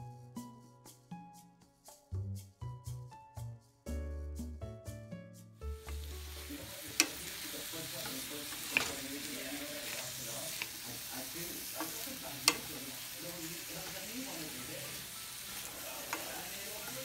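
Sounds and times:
vegetables sizzling in a pan: 0:05.8 - 0:17.0.

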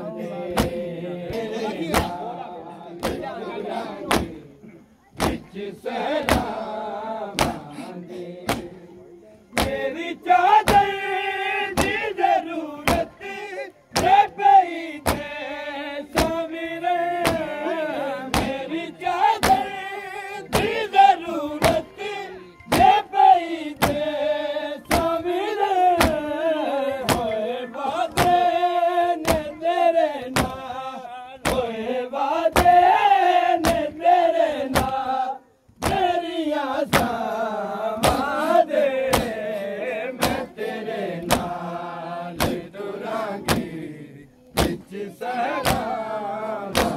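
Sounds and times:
men chanting a lament: 0:00.0 - 0:46.9
chest-beating slaps: 0:00.5 - 0:02.2, 0:03.0 - 0:03.3, 0:04.1 - 0:04.4, 0:05.2 - 0:05.5, 0:06.2 - 0:06.6, 0:07.4 - 0:08.8, 0:09.5 - 0:09.9, 0:10.6 - 0:10.9, 0:11.8 - 0:12.0, 0:12.8 - 0:13.2, 0:13.9 - 0:14.2, 0:15.0 - 0:15.3, 0:17.2 - 0:17.5, 0:18.3 - 0:18.6, 0:19.4 - 0:19.7, 0:20.5 - 0:20.8, 0:22.7 - 0:23.0, 0:23.8 - 0:24.0, 0:24.9 - 0:25.1, 0:27.0 - 0:27.3, 0:29.2 - 0:29.5, 0:33.6 - 0:33.9, 0:34.7 - 0:35.0, 0:35.8 - 0:36.1, 0:36.9 - 0:37.2, 0:38.0 - 0:38.3, 0:39.1 - 0:39.4, 0:40.2 - 0:40.5, 0:41.2 - 0:41.6, 0:42.4 - 0:42.7, 0:43.4 - 0:43.7, 0:44.5 - 0:44.9, 0:45.6 - 0:45.9.

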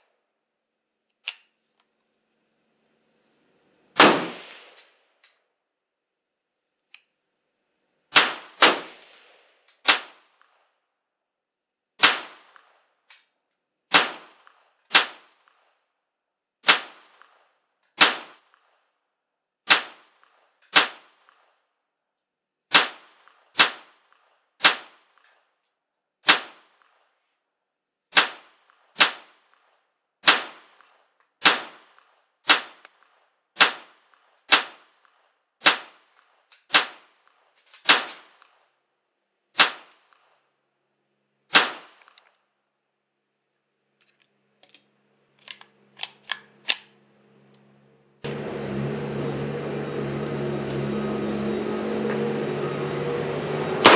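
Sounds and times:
pistol shots: 0:04.0 - 0:04.9, 0:08.1 - 0:10.6, 0:12.0 - 0:12.9.

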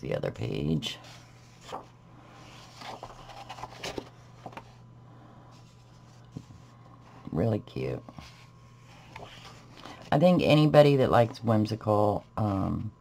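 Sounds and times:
paper pages turning: 0:01.0 - 0:04.8, 0:08.1 - 0:10.3.

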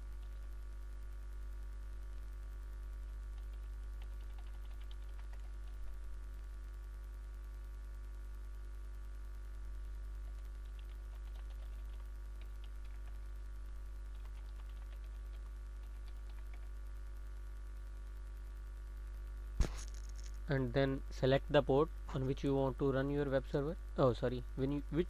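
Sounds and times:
low electrical hum: 0:00.0 - 0:25.0
computer keyboard keystrokes: 0:03.4 - 0:05.8, 0:10.3 - 0:13.2, 0:14.1 - 0:16.7.

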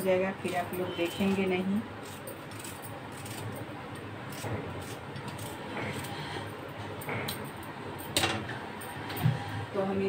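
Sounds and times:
knife slicing onion: 0:00.4 - 0:06.5.

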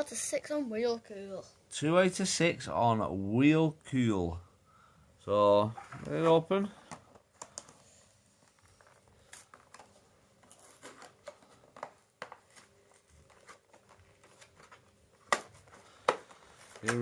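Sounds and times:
plastic box clicks and crinkles: 0:06.8 - 0:07.8, 0:08.5 - 0:17.0.

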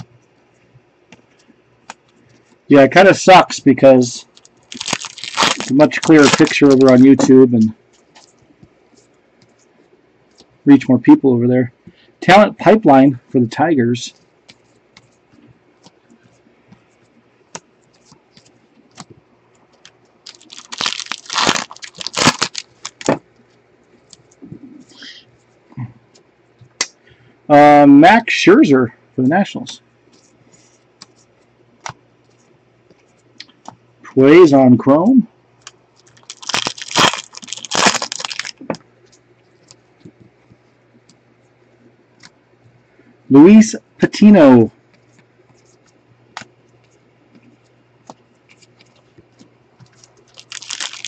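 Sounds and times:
wrapper tearing and crinkling: 0:04.3 - 0:07.3, 0:20.2 - 0:23.2, 0:36.0 - 0:38.7, 0:49.9 - 0:51.0
cards shuffling rustle: 0:04.3 - 0:10.5, 0:14.2 - 0:24.4, 0:35.6 - 0:41.2, 0:44.9 - 0:51.0.

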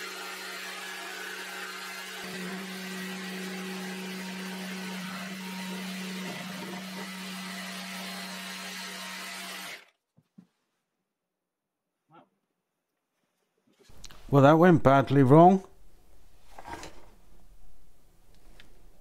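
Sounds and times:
jigsaw cutting plywood: 0:00.0 - 0:09.9.

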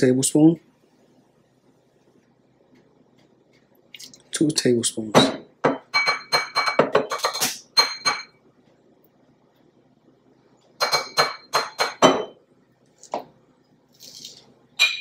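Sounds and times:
spoon clinking against glass bowl: 0:05.6 - 0:08.4, 0:10.8 - 0:12.4, 0:14.0 - 0:15.0.

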